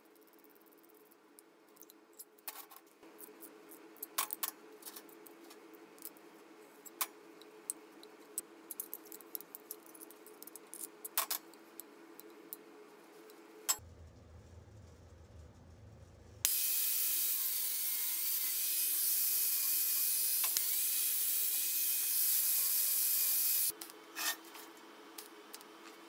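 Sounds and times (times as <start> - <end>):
steady low hum: 11.8 - 16.5.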